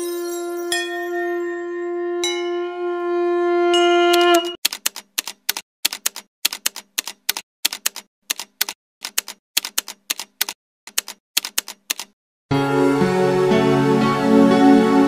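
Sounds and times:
typewriter keystroke clicks: 4.6 - 12.2
music: 12.5 - 15.0.

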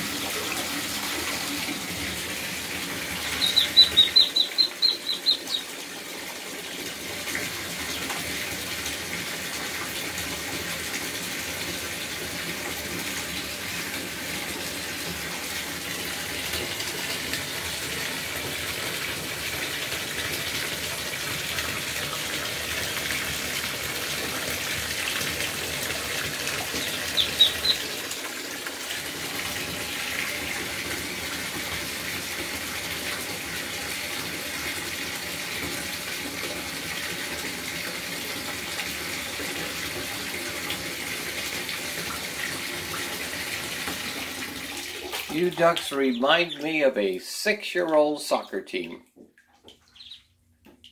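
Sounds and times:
water running from tap into tub: 0.0 - 50.9
ducklings peeping: 3.2 - 5.7, 26.7 - 28.0, 45.5 - 46.8, 49.9 - 50.3.

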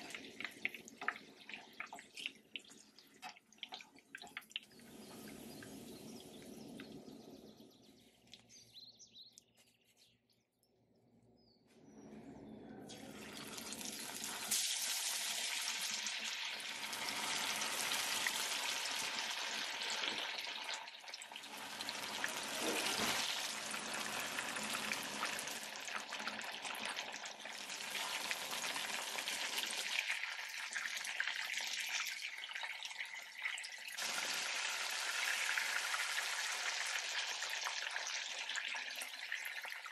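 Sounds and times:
fish sizzling in hot oil: 13.1 - 39.8.

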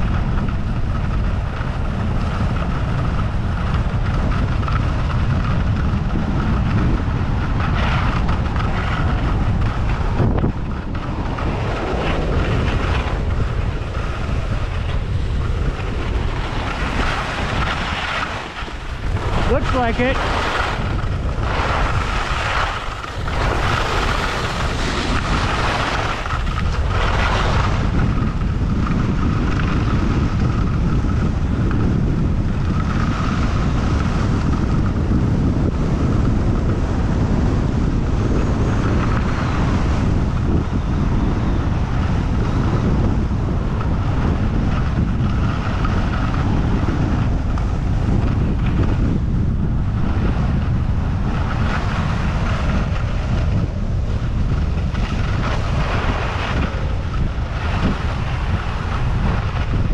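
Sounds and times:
wind rushing over microphone: 0.0 - 59.9
skis sliding on snow: 11.1 - 31.3, 51.4 - 59.7.

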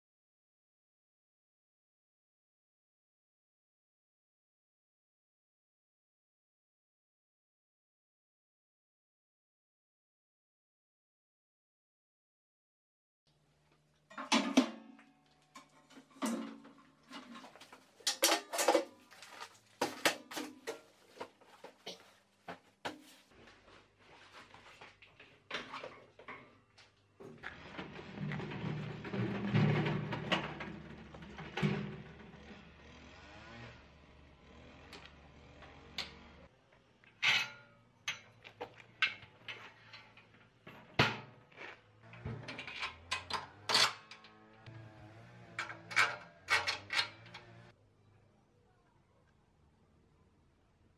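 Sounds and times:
metal knocks and clatters: 14.1 - 22.0, 27.2 - 32.6, 45.5 - 47.7
cart casters rolling on concrete: 14.2 - 21.8, 25.1 - 36.5, 38.2 - 47.8
sharp metal clanks and clicks: 45.6 - 47.6.

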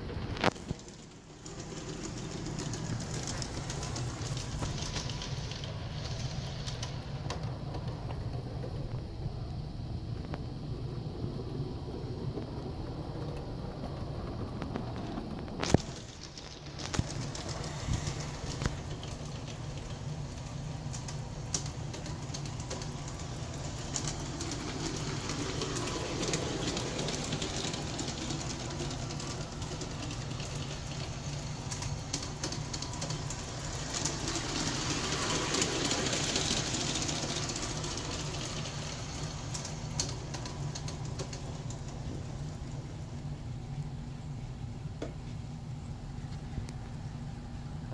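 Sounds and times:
model train running on track: 0.0 - 43.8.

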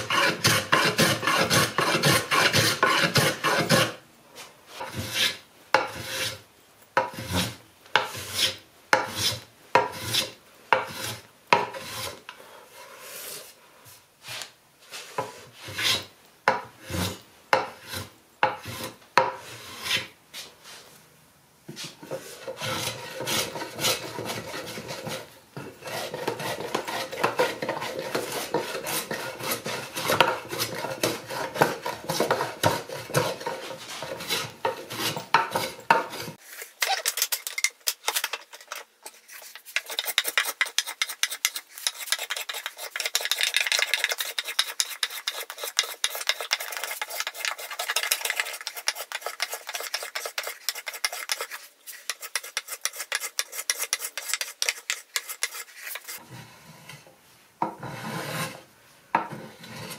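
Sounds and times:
hand plane shaving wood: 0.0 - 4.0, 22.2 - 37.0, 38.1 - 56.2.

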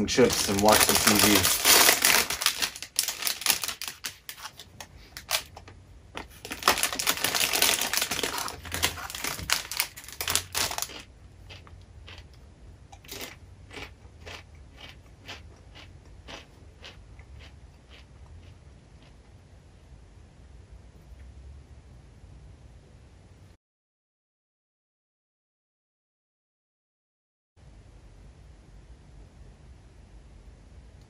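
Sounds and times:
chips being chewed: 0.0 - 4.6, 6.2 - 19.4
chip bag crinkling: 0.0 - 5.6, 6.2 - 12.3, 13.0 - 18.0.

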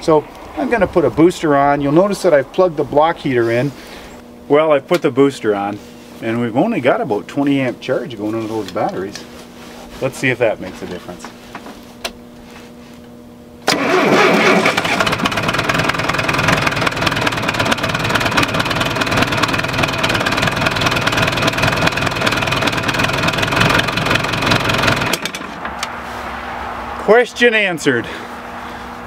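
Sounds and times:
starter cranking diesel engine: 13.6 - 25.9.

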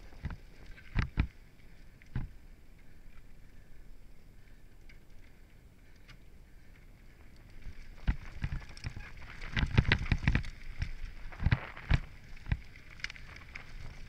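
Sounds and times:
bike knocking and rattling on rocks: 0.0 - 1.4, 2.1 - 2.4, 6.6 - 14.0
tyre and wind rushing: 7.5 - 14.0.

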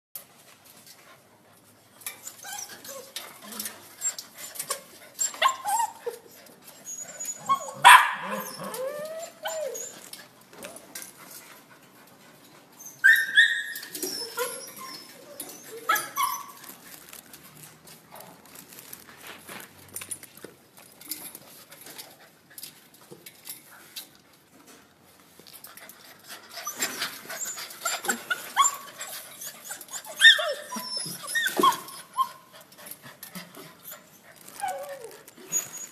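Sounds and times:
puppies whining and yipping: 2.1 - 10.4, 12.7 - 17.1, 26.5 - 32.7, 33.7 - 35.9.

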